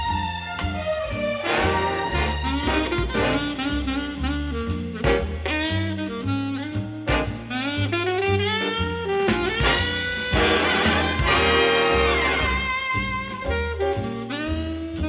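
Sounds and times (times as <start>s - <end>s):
jazz with saxophone and brass: 0.0s - 15.0s.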